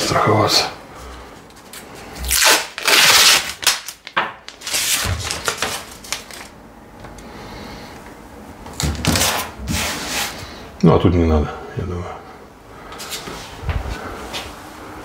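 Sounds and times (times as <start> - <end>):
tape crinkling: 1.7 - 6.6
tape ripping off roll: 2.2 - 6.5.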